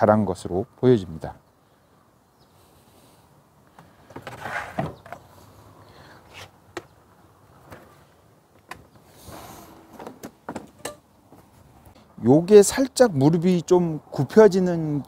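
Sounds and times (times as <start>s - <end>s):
plastic battery pack scraping clatter: 4.2s - 5.0s.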